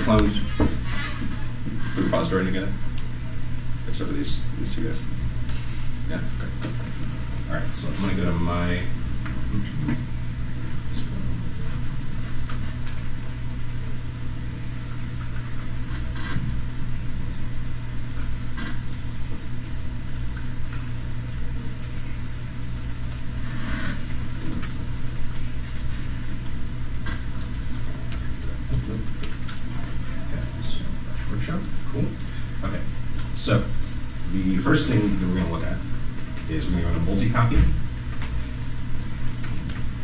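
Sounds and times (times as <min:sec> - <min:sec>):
low room hum: 0:00.0 - 0:40.0
computer keyboard clicks: 0:27.2 - 0:29.8.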